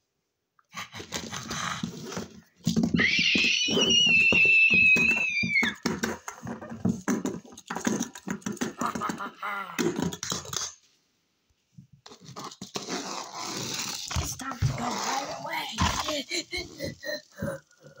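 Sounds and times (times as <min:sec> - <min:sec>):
plastic toy scraping across box: 0:00.9 - 0:02.8, 0:12.1 - 0:17.7.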